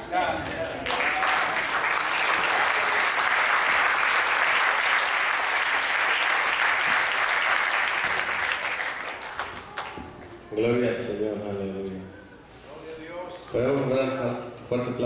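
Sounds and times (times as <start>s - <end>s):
congregation applauding: 0.4s - 10.3s.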